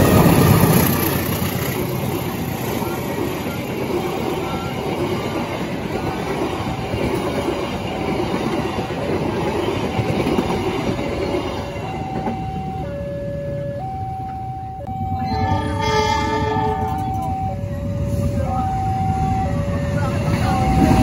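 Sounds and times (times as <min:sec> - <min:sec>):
train wheels rumbling and clattering: 0:00.0 - 0:12.8
level crossing warning signal: 0:02.6 - 0:07.2, 0:11.2 - 0:21.0.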